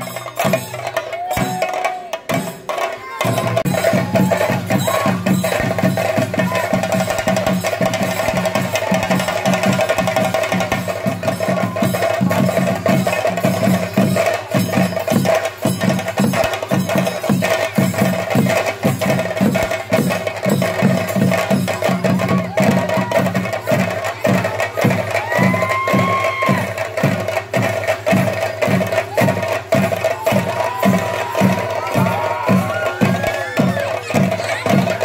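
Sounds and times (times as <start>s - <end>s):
drums played with sticks: 0.0s - 35.0s.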